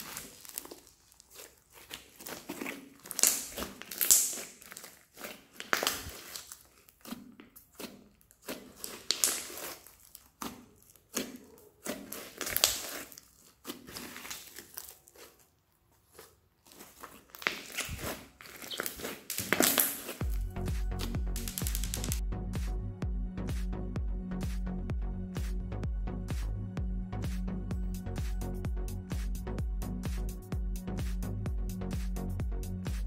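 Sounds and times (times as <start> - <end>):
crunchy slime crackling and squishing: 0.0 - 22.2.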